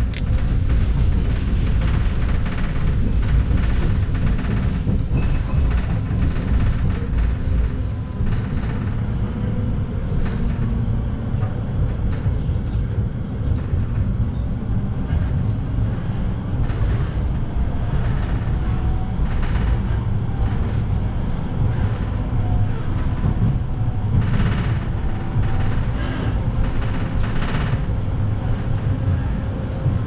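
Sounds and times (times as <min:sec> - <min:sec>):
tram rumbling: 0:00.0 - 0:30.0
wheel and rail clatter: 0:00.0 - 0:30.0.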